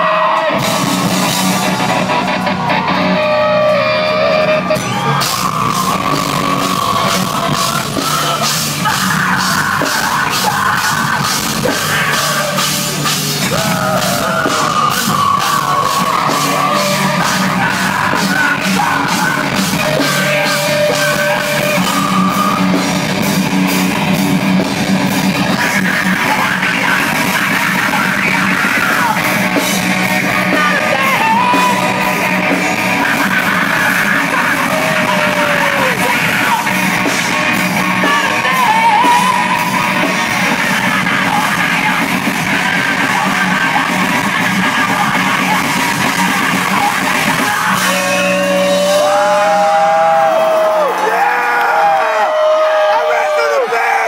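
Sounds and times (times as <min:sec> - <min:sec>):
distorted electric guitar: 0:00.0 - 0:54.0
drums: 0:00.0 - 0:54.0
yelled vocals: 0:00.0 - 0:54.0.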